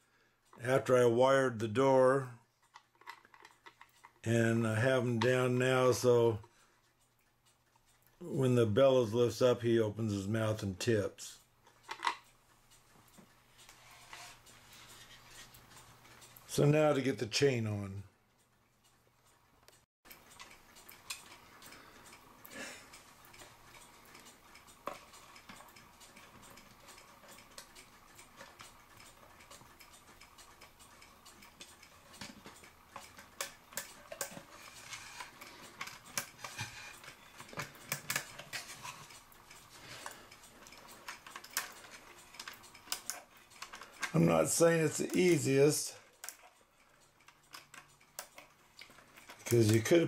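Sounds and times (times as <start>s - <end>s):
metal chain clicking and rattling: 31.3s - 50.0s.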